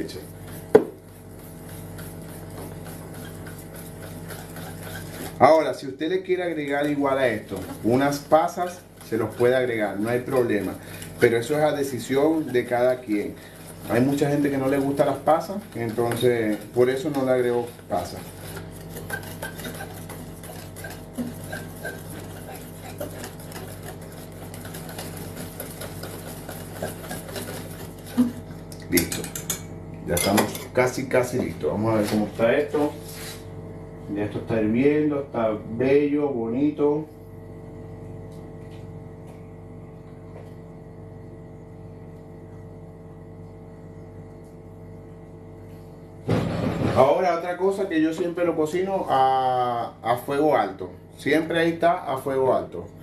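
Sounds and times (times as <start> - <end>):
steady low hum: 0.0 - 53.0
rice pudding popping as it boils: 0.6 - 1.1, 14.8 - 29.6
spoon scraping a pot: 1.4 - 5.7, 6.6 - 30.8.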